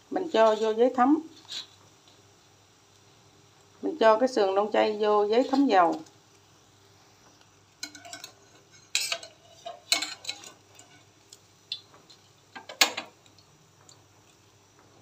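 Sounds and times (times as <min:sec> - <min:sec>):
metal utensils clinking on pan: 0:07.8 - 0:11.1, 0:12.6 - 0:13.1.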